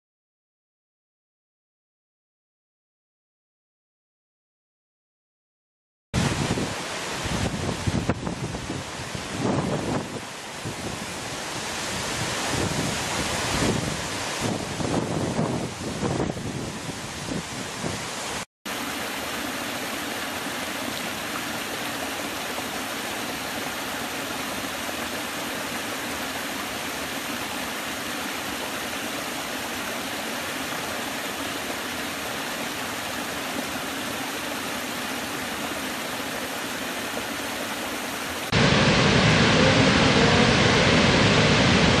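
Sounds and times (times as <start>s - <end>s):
wind on microphone: 6.2s - 18.2s, 38.5s - 42.0s
big waterfall rushing: 6.2s - 42.0s
stream splashing over rocks: 6.2s - 42.0s.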